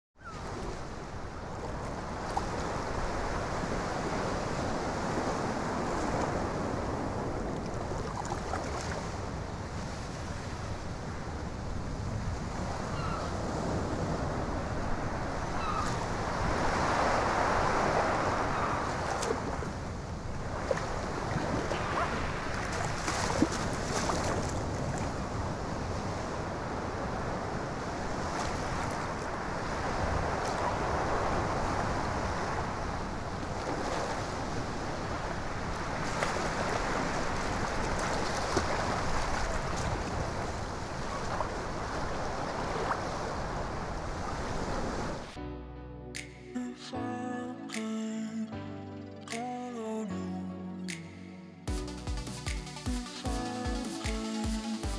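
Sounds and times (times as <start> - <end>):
water splashes: 0.2 - 10.8, 12.6 - 26.5, 27.7 - 45.4
sea water washing: 0.2 - 11.4, 12.6 - 45.4
wind: 0.2 - 45.4.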